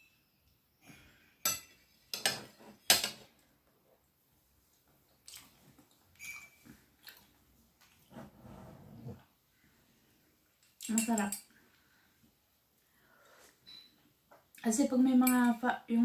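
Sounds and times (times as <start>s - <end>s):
cutlery clinking on ceramic plate: 1.4s - 3.2s, 6.2s - 6.6s.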